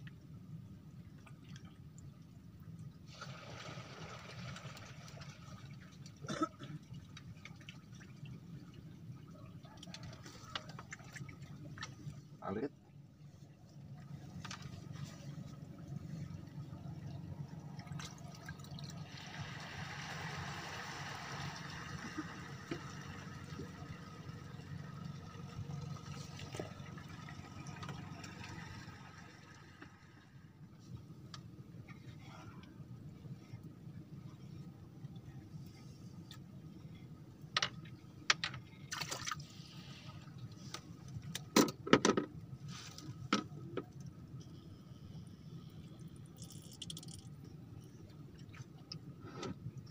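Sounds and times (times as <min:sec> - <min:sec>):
water trickling and splashing: 0:00.8 - 0:12.4, 0:13.8 - 0:31.2, 0:37.8 - 0:41.3, 0:46.0 - 0:49.9
low motor hum: 0:13.0 - 0:38.9
fish splashing at water surface: 0:38.8 - 0:40.1.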